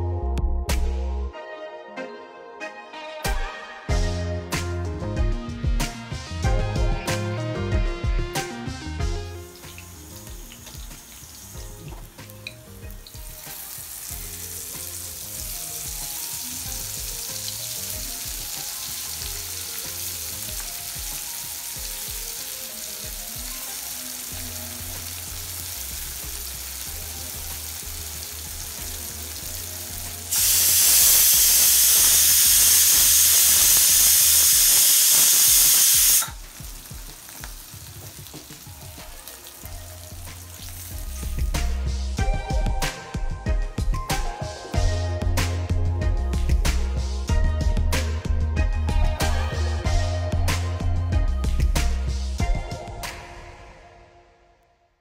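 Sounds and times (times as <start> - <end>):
fish sizzling in oil: 9.2 - 41.8.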